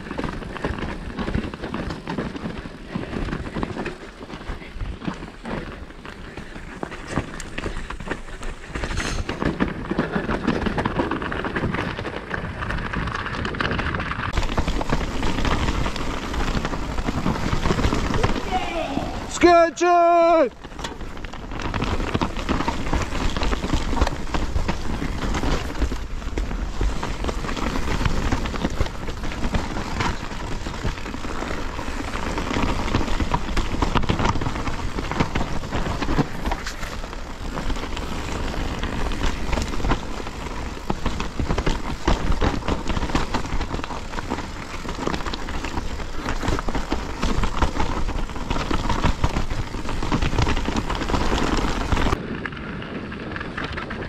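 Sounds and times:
bike rattling over bumps: 0:00.0 - 0:54.0
tyres crunching over loose stones: 0:00.0 - 0:54.0
wind rumble on microphone: 0:20.5 - 0:54.0.

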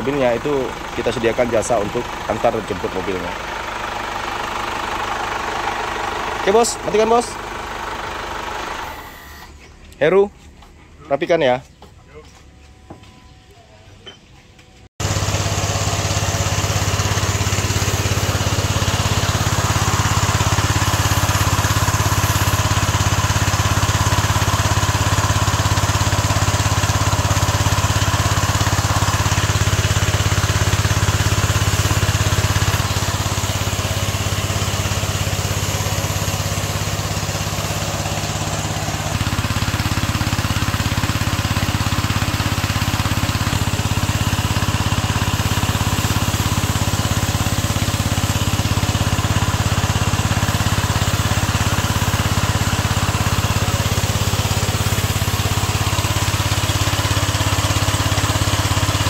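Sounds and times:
pump running: 0:00.0 - 0:10.3, 0:15.0 - 0:59.0
water jet spraying a car: 0:15.0 - 0:59.0.

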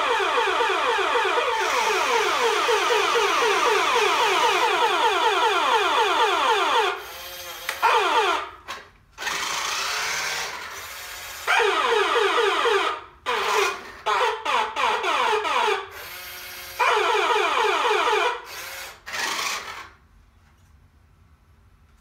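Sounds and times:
toy electronic siren: 0:00.0 - 0:08.6, 0:11.4 - 0:18.6
toy drive motor running: 0:09.2 - 0:11.7, 0:18.2 - 0:19.9.

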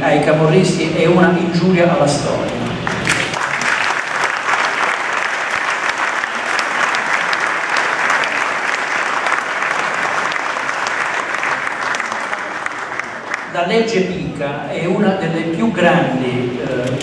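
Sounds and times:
audience applauding: 0:02.8 - 0:13.6.

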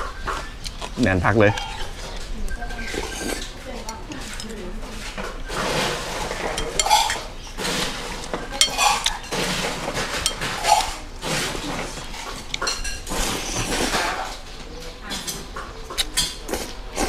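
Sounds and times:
slurping noodle soup: 0:00.4 - 0:14.4, 0:15.9 - 0:17.0
metal spoon clinking on ceramic bowl: 0:06.6 - 0:07.3, 0:10.1 - 0:10.6.

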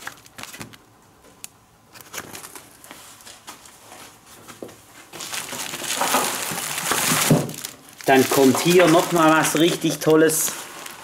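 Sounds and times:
cardboard rustling and tapping: 0:04.6 - 0:07.7.

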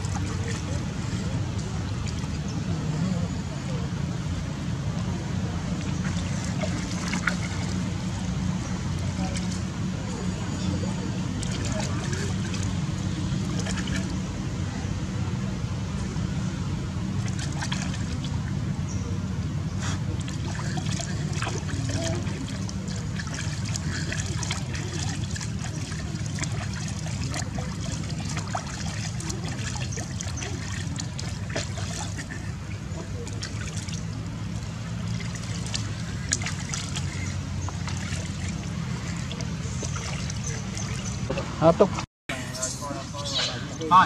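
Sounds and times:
steady low hum: 0:00.0 - 0:44.0
water trickling into a basin: 0:10.7 - 0:14.2, 0:20.1 - 0:41.8.

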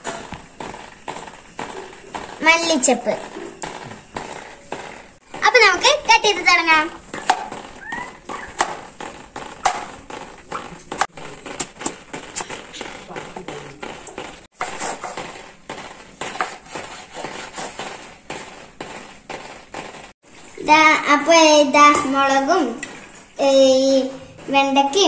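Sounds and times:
knife chopping on plastic board: 0:07.0 - 0:20.1.

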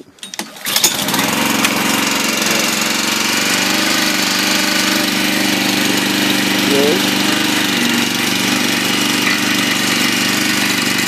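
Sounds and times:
recoil starter pull: 0:00.0 - 0:11.0
small gasoline engine running: 0:00.6 - 0:11.0.

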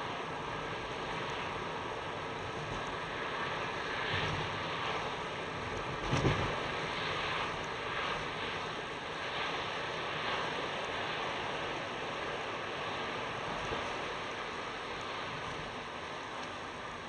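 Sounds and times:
tyre and wind noise in car: 0:00.0 - 0:09.2.

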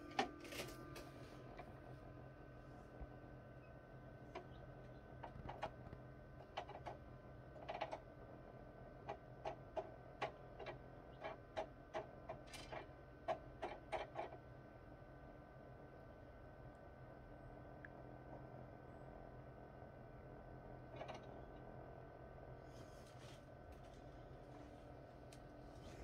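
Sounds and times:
incubator low hum: 0:00.0 - 0:26.0
chick pecking eggshell taps: 0:04.3 - 0:07.0.

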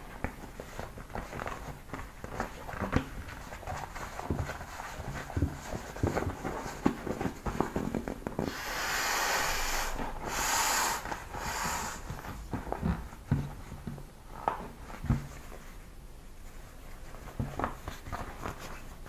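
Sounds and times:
plastic crinkling and rubbing: 0:00.0 - 0:08.5, 0:12.0 - 0:19.0
air hissing out of valve: 0:08.4 - 0:12.1.

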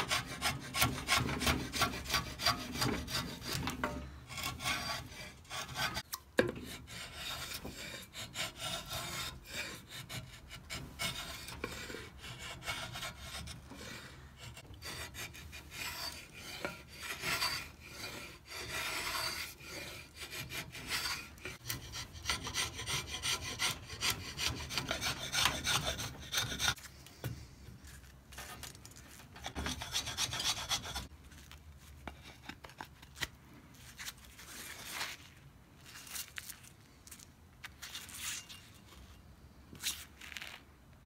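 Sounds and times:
rasp scraping wood: 0:00.0 - 0:26.8, 0:28.3 - 0:31.1.

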